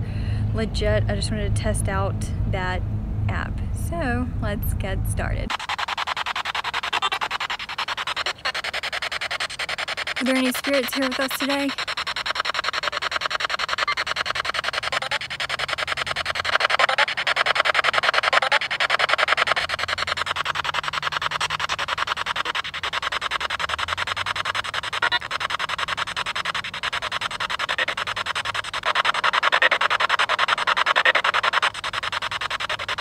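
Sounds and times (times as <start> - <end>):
choppy radio static: 10.2 - 11.8, 28.9 - 31.6
word-like voice fragments: 10.2 - 11.8.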